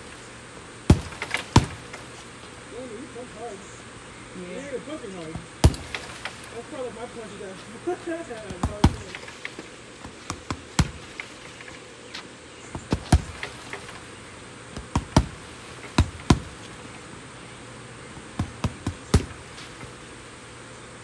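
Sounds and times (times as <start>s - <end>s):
boxing gloves punching heavy bag: 0.9s - 2.1s, 5.6s - 6.1s, 8.4s - 9.4s, 10.1s - 11.4s, 12.8s - 14.0s, 14.8s - 16.8s, 18.2s - 20.0s.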